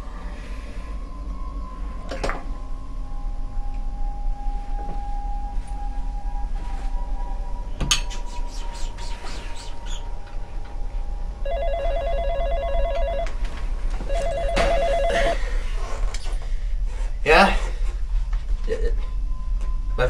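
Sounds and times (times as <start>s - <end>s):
telephone ringing: 11.4s - 13.4s, 14.1s - 15.4s.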